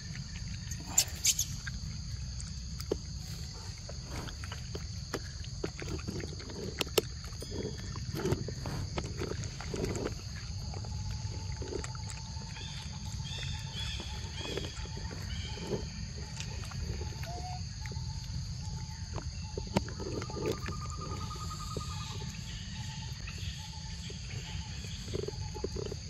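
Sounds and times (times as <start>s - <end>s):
high insect drone: 0.0s - 26.0s
monkey chewing and slurping fruit: 0.0s - 26.0s
bird chirping: 0.6s - 1.8s, 10.4s - 26.0s.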